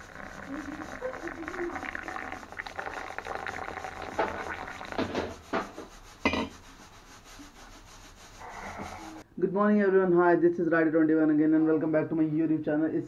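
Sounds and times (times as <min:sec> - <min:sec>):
water pouring into mug: 0:00.0 - 0:06.5.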